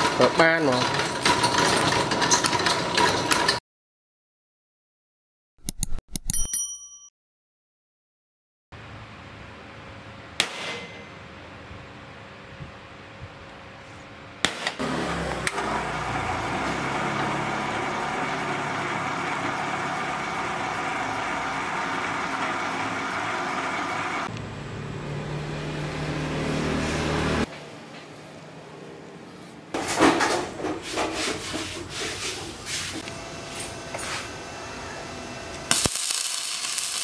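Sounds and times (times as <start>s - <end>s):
drill bit cutting steel: 15.4s - 24.3s.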